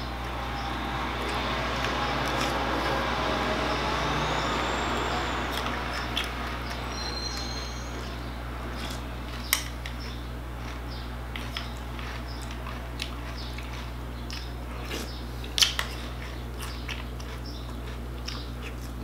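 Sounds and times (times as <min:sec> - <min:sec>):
faint high squeal: 0:00.0 - 0:09.0
road vehicle passing: 0:00.0 - 0:18.5
crunchy cereal being chewed: 0:00.2 - 0:03.1, 0:05.5 - 0:19.0.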